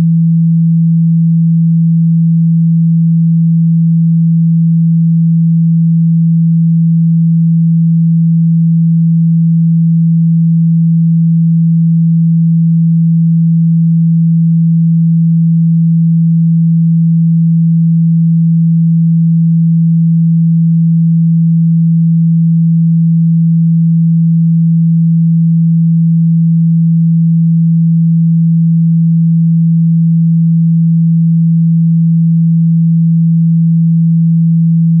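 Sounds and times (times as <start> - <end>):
low sine-wave tone: 0.0 - 35.0.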